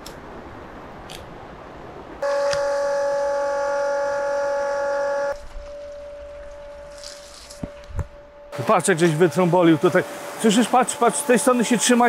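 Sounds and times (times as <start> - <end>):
loud steady horn tone: 2.2 - 7.3
faint steady tone: 2.2 - 8.6
rain-like hiss: 6.8 - 12.0.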